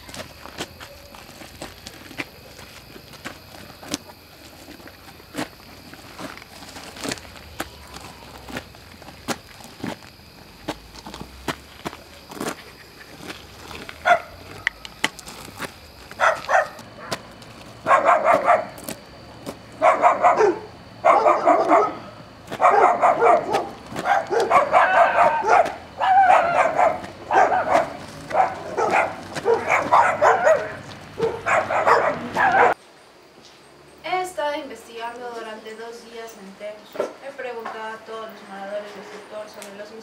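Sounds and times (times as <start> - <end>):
dog barking: 14.0 - 14.8, 16.2 - 17.2, 17.8 - 18.8, 19.8 - 32.8.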